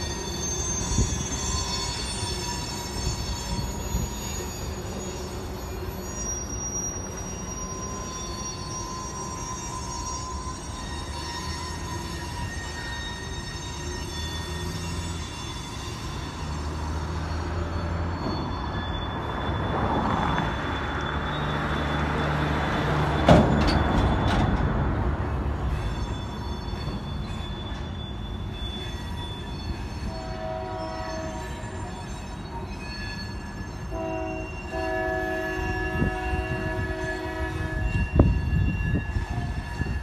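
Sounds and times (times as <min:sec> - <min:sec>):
locomotive horn chord: 0:30.1 - 0:31.6, 0:33.9 - 0:38.1.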